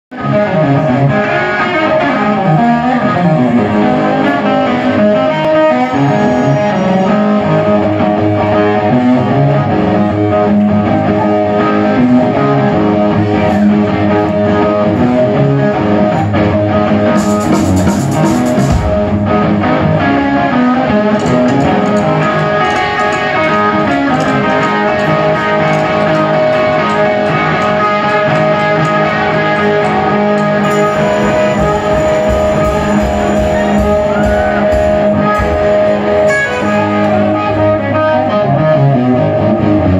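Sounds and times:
electric guitar: 0.1s - 39.9s
live rock band: 0.1s - 39.9s.

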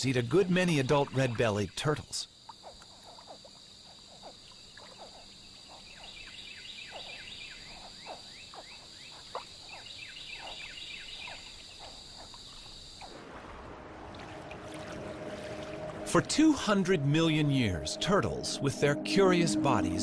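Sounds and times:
frogs calling: 0.0s - 13.2s.

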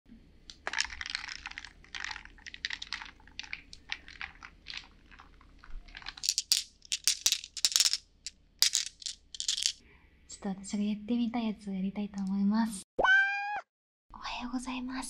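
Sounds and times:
ice cubes clinking in glass: 0.5s - 8.0s, 8.6s - 9.8s
small hard objects rattled in hands: 0.5s - 9.8s.

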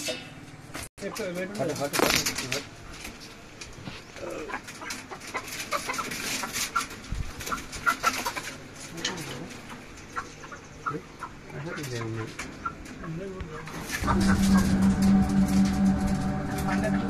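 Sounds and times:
chickens clucking and squawking: 3.9s - 17.0s.

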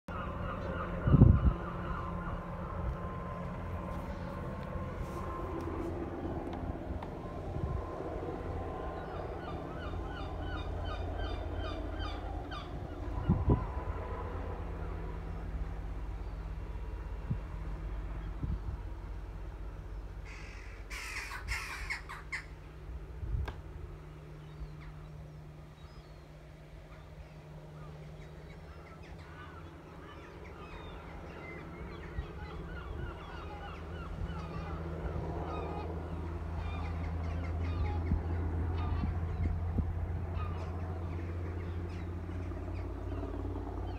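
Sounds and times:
gull calling: 0.1s - 2.8s, 9.0s - 13.6s, 20.3s - 22.6s, 27.8s - 39.6s
distant helicopter rumble: 0.1s - 43.9s.

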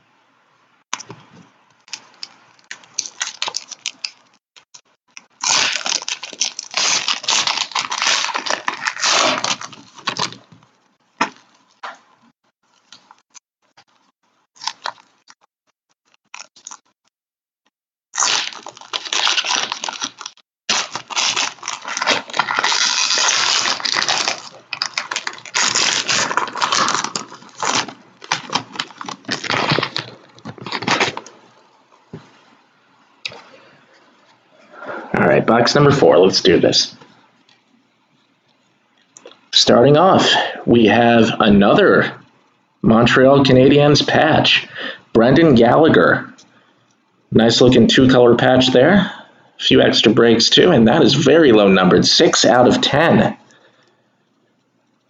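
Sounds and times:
foil wrappers crinkling and tearing: 1.9s - 10.6s, 13.8s - 17.0s, 18.1s - 31.4s.

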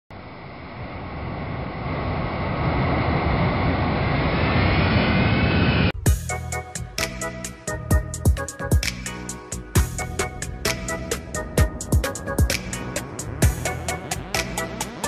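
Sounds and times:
jet engine rushing: 0.2s - 6.0s, 9.4s - 15.0s
music with sharp drum hits: 8.0s - 15.0s.

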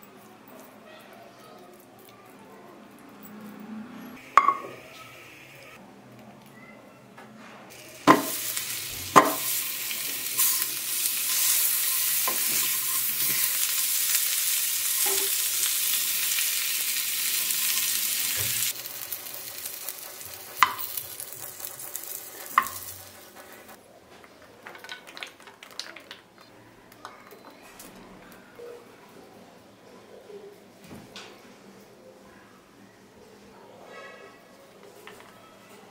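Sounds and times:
corn sizzling in butter: 7.7s - 23.8s.

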